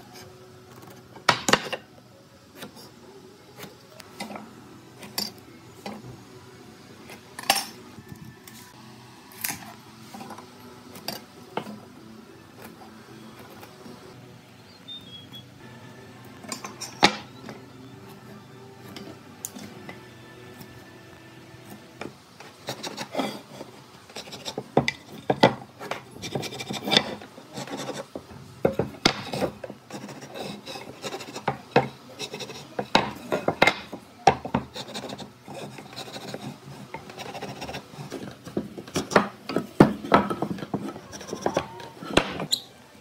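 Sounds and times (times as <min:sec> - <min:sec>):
wood scraping against wood: 0:21.6 - 0:42.6.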